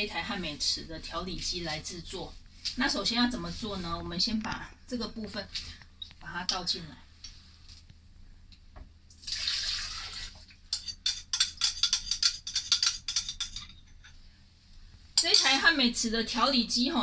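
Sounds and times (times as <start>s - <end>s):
liquid pouring into a blender jar: 9.2s - 10.5s.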